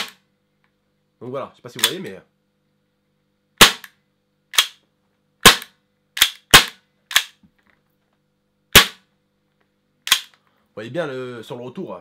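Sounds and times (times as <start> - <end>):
airsoft pistol shots: 0.0 - 0.2, 3.6 - 3.9, 4.5 - 4.8, 5.4 - 7.4, 8.7 - 9.0, 10.1 - 10.3
pistol slide snapping back: 6.2 - 7.4, 10.1 - 10.4.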